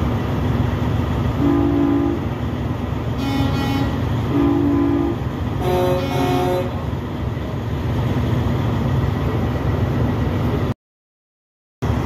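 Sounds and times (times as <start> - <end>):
diesel truck engines rumbling: 0.0 - 10.8
truck horn chord: 1.4 - 2.2, 3.2 - 6.8.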